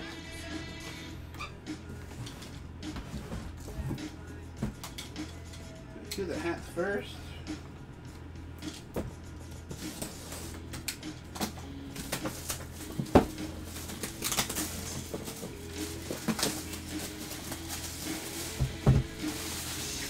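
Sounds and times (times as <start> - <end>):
background music: 0.0 - 20.0
packing tape pulled: 13.5 - 18.6.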